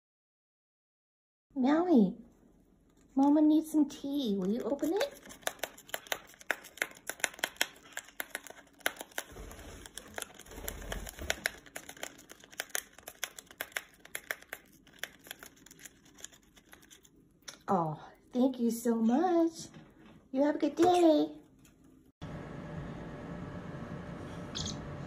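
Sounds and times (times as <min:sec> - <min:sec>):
packet crinkling: 0:04.4 - 0:17.3.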